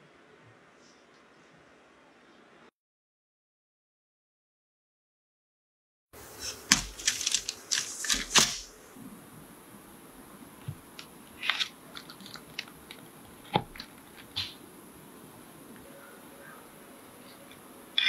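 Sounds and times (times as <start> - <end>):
crust crunching: 6.2 - 8.8, 10.6 - 14.6.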